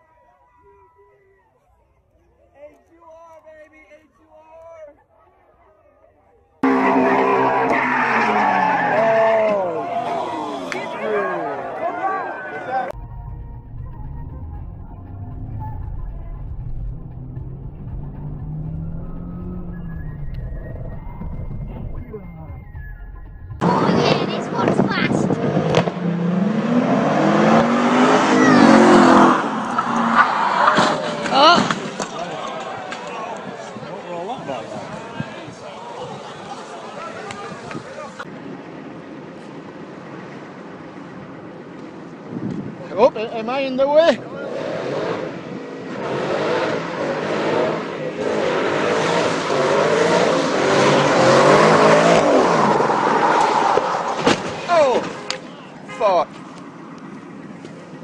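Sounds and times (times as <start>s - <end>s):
car engine revving: 6.6s - 9.7s, 12.9s - 31.4s, 44.3s - 54.2s
car speeding past: 6.6s - 11.5s, 12.8s - 22.0s, 23.6s - 31.9s, 44.3s - 54.2s.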